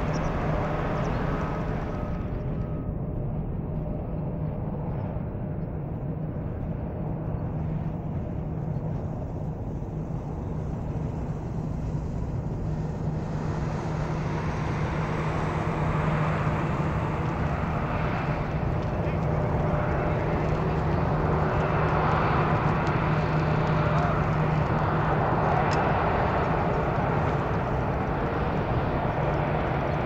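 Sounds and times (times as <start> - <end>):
jet engines rumbling: 0.0 - 30.0.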